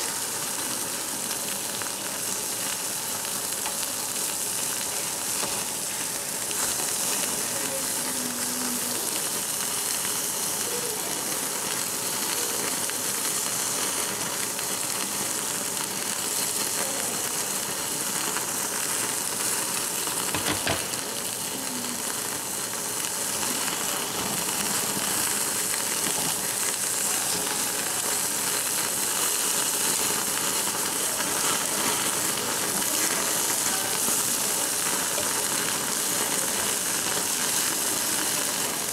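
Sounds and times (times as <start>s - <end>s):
meat sizzling on a grill plate: 0.0s - 38.9s.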